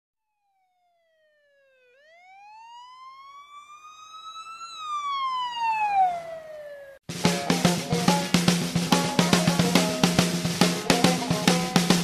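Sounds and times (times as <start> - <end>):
siren-like wailing tone: 0.2 - 7.0.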